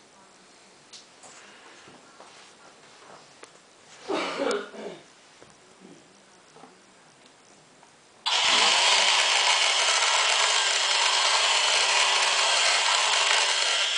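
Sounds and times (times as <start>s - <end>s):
electric drive spinning up: 8.2s - 13.9s
model engine running: 8.3s - 13.9s.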